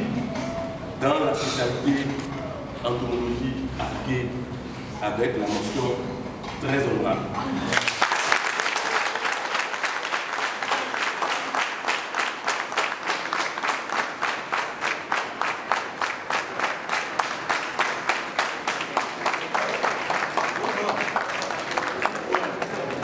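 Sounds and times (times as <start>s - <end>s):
audience applauding: 7.7s - 23.0s
rhythmic clapping in unison: 7.8s - 23.0s.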